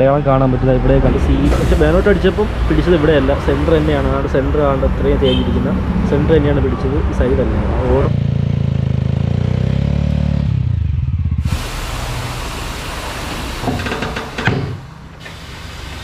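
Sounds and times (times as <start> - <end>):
motorcycle engine running: 5.2 - 12.8
tyre-changing machine hissing: 11.4 - 16.0.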